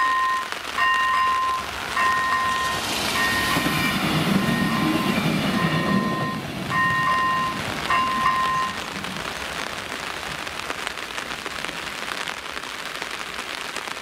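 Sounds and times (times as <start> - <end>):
level crossing bell dinging: 0.0 - 8.8
passenger train rumbling past: 0.8 - 9.8.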